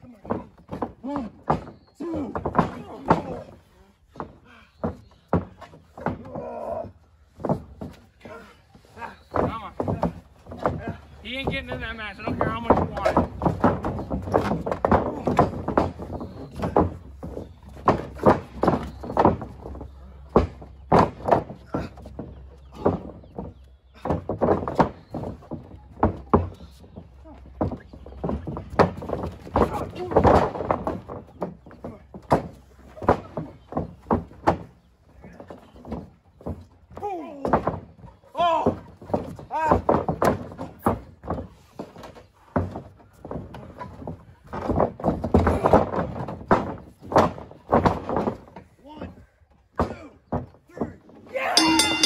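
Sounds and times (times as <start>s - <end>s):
wrestlers' slaps and thuds: 12.3s - 22.1s
scuffling: 51.5s - 52.0s.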